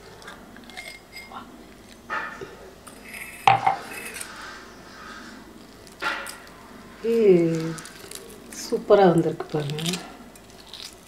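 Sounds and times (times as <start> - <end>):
glass clinking and knocking on table: 3.5 - 3.8.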